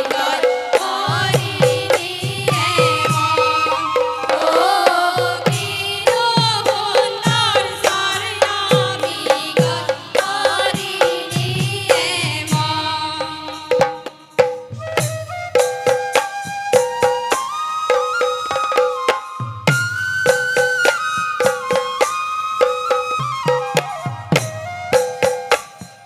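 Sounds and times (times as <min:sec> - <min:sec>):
bamboo flute melody: 0:00.0 - 0:07.0, 0:14.6 - 0:26.0
women's chorus singing: 0:00.0 - 0:14.4
hand drums beating: 0:00.0 - 0:26.0.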